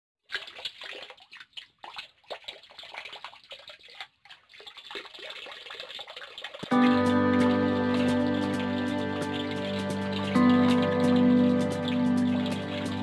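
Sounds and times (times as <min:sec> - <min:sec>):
water splashing: 0:00.2 - 0:13.0
music with sustained chords: 0:06.7 - 0:13.0.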